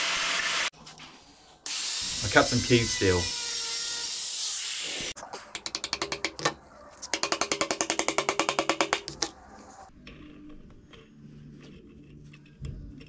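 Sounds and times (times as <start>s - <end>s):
hammer tapping on steel: 5.6s - 9.3s.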